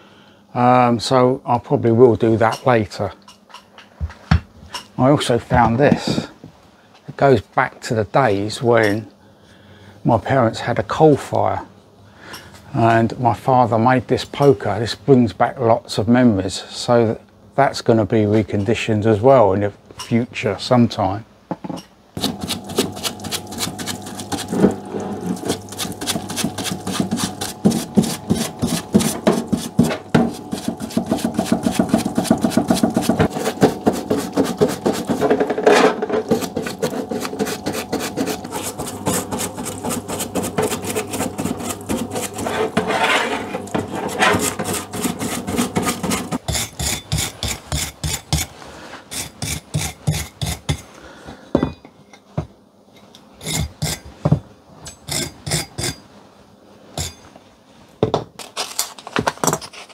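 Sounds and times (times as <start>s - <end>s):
pump humming: 22.2s - 46.4s
brush scrubbing metal screw: 22.2s - 50.8s
wire brush scrubbing: 22.2s - 50.8s.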